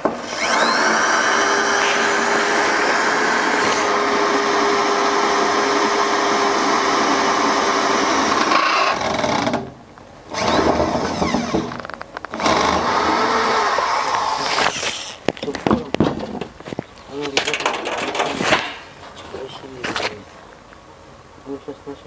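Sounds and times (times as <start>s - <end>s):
cordless drill boring sheet metal: 0.1s - 9.6s.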